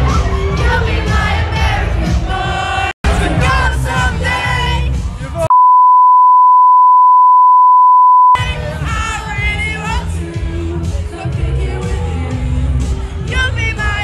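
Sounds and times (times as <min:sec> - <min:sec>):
censor bleep: 0:05.5 - 0:08.4.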